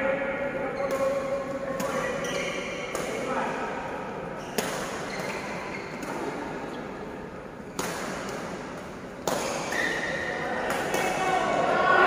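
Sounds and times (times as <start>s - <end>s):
racket hitting shuttlecock: 0.8s - 3.6s, 4.5s - 7.0s, 7.7s - 11.3s.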